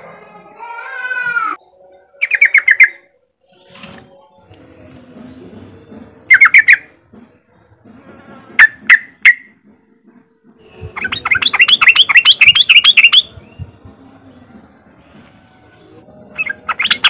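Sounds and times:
bird chattering run: 0:10.9 - 0:13.6.

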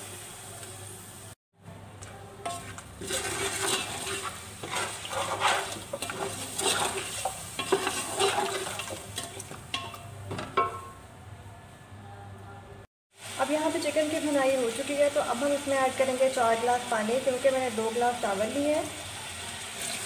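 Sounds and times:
spatula scraping and knocking pot: 0:02.0 - 0:11.0
chicken sizzling in oil: 0:02.5 - 0:10.2, 0:13.1 - 0:20.0.

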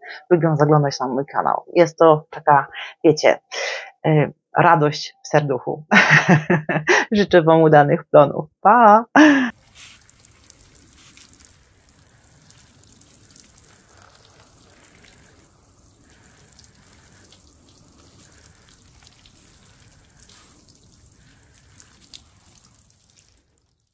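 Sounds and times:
water drops ticking: 0:09.5 - 0:23.9
water spray sprinkling on soil: 0:09.5 - 0:23.9.

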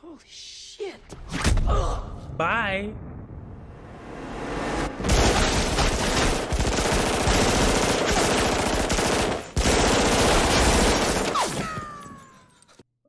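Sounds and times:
rapid automatic gunfire: 0:05.1 - 0:11.6.

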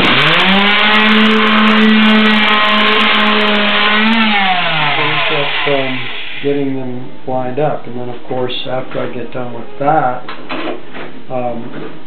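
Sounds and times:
electric sander winding down: 0:00.0 - 0:06.6.

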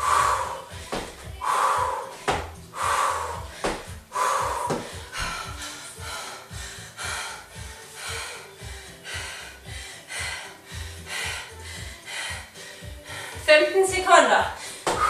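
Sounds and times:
woman breathing hard: 0:00.0 - 0:13.5, 0:14.6 - 0:15.0
thumps on floor: 0:02.3 - 0:02.5, 0:04.7 - 0:05.4.

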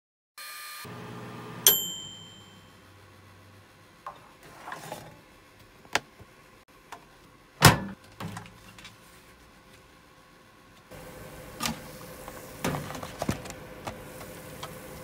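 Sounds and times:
microwave oven humming: 0:00.8 - 0:04.4, 0:10.4 - 0:15.0
microwave timer bell ding: 0:01.6 - 0:02.8.

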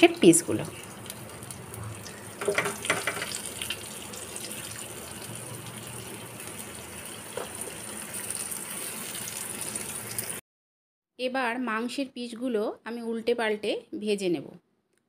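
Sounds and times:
chicken sizzling in frying oil: 0:00.0 - 0:10.4.

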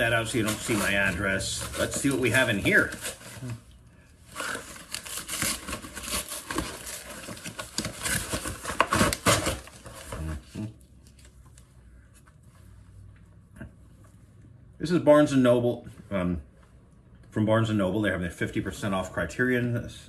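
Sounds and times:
paper ripping and crinkling: 0:00.0 - 0:11.4.

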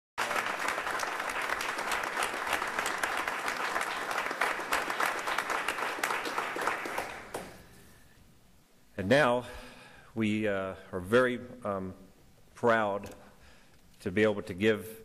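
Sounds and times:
roomful of people applauding: 0:00.2 - 0:08.0.

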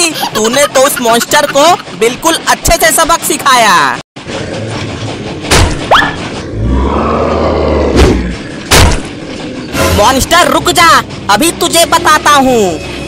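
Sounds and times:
cartoon sharp thuds: 0:05.5 - 0:06.2, 0:07.9 - 0:09.2.

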